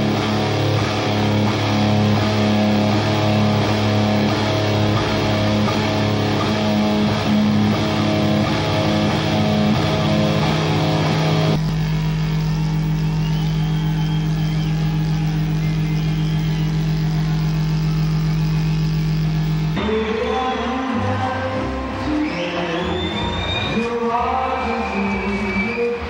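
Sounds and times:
live punk rock band: 0.0s - 11.6s
steady low drone: 0.0s - 22.0s.

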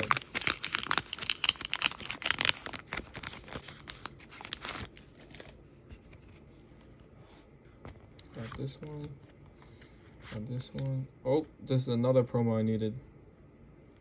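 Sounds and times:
foil wrapper crinkling and tearing: 0.0s - 5.6s
cards rustling: 0.0s - 7.1s, 7.8s - 11.0s.

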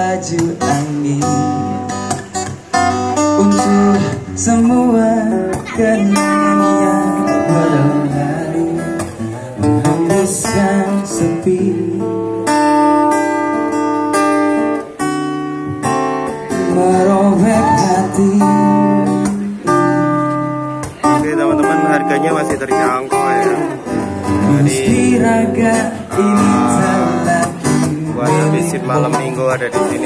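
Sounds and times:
person singing: 0.0s - 12.1s, 16.7s - 20.0s, 23.1s - 30.0s
acoustic guitar playing: 0.0s - 30.0s.

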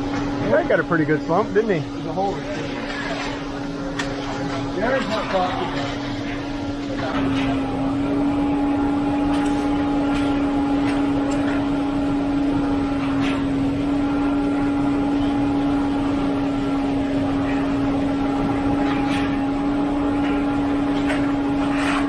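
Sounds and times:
truck engine droning: 6.3s - 22.0s.

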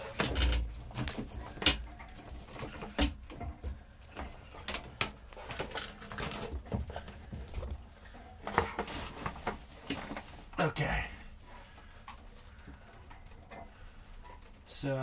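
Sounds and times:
rustling: 0.0s - 10.6s.

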